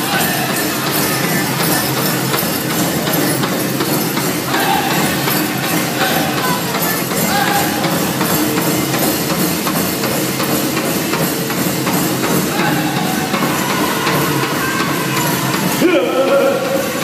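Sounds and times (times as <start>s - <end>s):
large drum steady beat: 0.0s - 17.0s
group singing: 4.5s - 8.0s.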